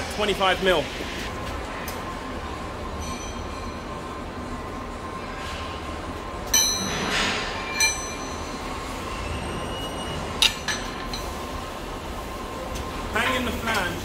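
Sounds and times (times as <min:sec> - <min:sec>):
steady workshop hum: 0:00.0 - 0:14.0
metal clinking on steel pipe: 0:07.7 - 0:08.5.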